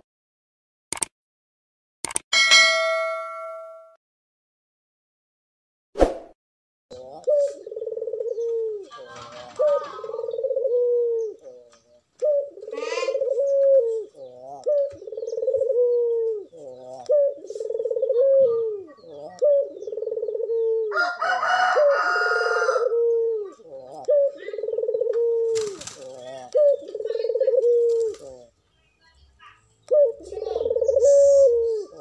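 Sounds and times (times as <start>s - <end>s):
dove cooing: 6.9s - 28.6s, 29.8s - 32.0s.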